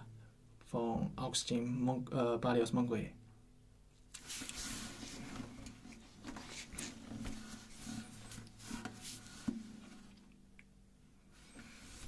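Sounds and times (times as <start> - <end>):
guitar being handled rustling: 4.2 - 10.3, 11.4 - 12.0.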